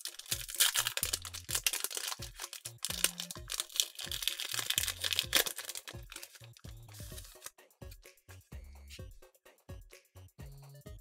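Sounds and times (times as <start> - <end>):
foil wrapper crinkling and tearing: 0.0 - 7.5
background music with bass line: 0.0 - 11.0.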